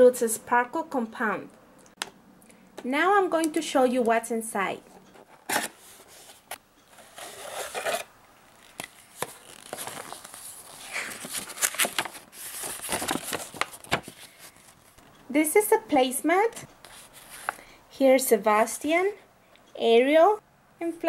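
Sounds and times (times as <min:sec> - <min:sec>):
paper rustling and crinkling: 0:05.2 - 0:15.0, 0:16.9 - 0:17.6
cardboard box being opened: 0:07.0 - 0:08.1.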